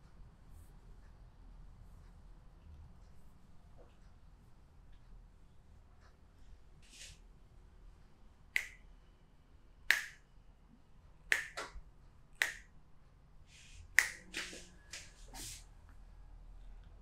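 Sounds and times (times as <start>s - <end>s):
hands making snapping pops: 9.9s - 10.2s, 11.3s - 11.8s, 12.4s - 12.7s.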